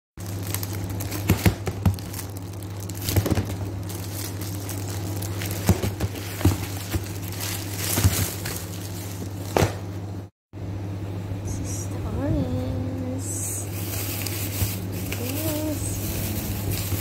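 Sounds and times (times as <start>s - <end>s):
tissue paper crinkling: 0.2s - 9.6s, 13.7s - 17.0s
fruit knocking in plastic basket: 5.5s - 7.2s.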